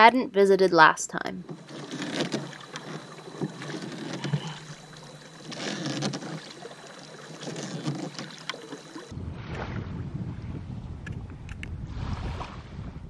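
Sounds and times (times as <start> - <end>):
oar knocks: 1.4 - 9.1
oars splashing in water: 1.4 - 9.8
low wind rumble: 9.0 - 13.0.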